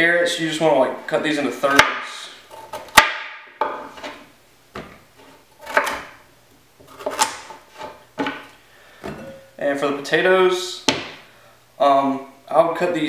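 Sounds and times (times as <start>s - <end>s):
knife chopping on plastic board: 2.7s - 4.1s, 5.6s - 6.1s, 6.8s - 8.5s, 10.9s - 11.2s.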